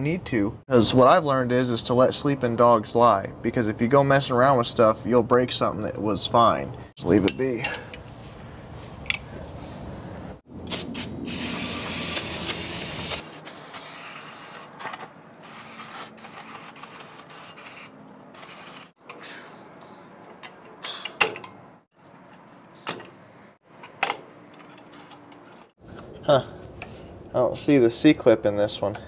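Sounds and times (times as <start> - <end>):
hand tools clinking on metal: 7.1 - 8.1
spray hissing: 10.7 - 14.7, 15.4 - 19.0.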